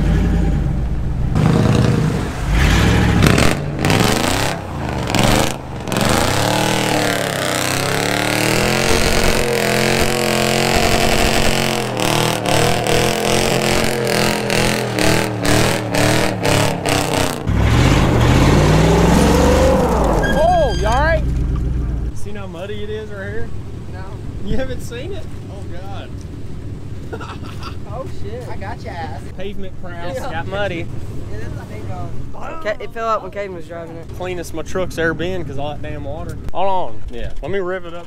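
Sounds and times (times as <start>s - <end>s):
sharp exhaust crackles: 0.0s - 22.2s
truck engine revving: 0.0s - 22.6s.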